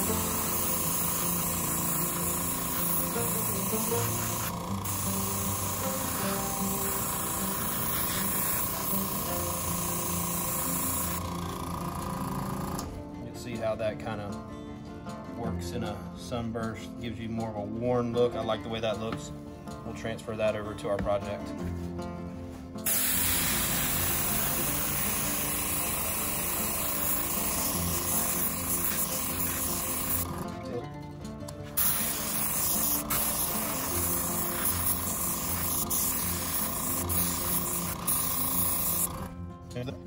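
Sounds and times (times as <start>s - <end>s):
airbrush hissing: 0.0s - 12.8s, 22.8s - 30.5s, 31.6s - 39.3s
air compressor humming: 0.0s - 13.1s, 22.8s - 30.7s, 31.6s - 39.4s.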